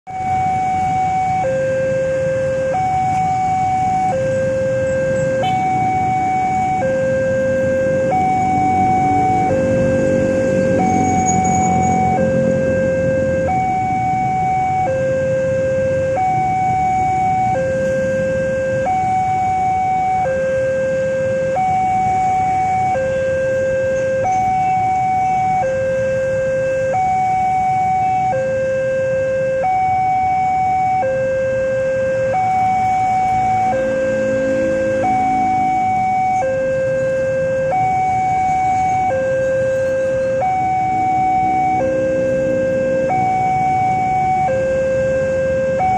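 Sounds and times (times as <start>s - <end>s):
electronic two-tone warning alarm: 0.1s - 45.9s
motorbike engines passing: 0.3s - 45.9s.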